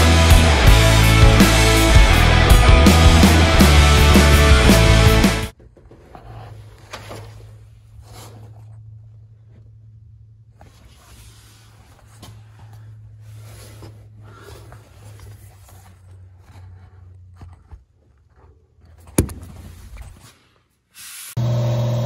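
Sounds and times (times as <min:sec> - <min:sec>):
sharp knock: 0:19.2 - 0:19.8.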